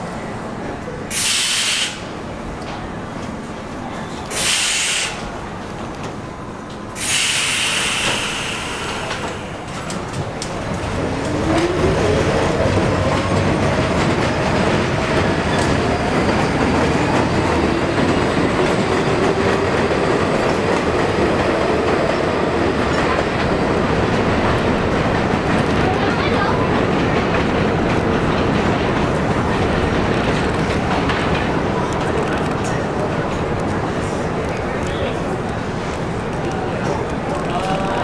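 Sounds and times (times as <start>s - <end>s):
train wheels rumbling and clacking: 0.5s - 38.0s
air hissing: 1.1s - 2.1s, 4.3s - 5.2s, 7.0s - 9.6s.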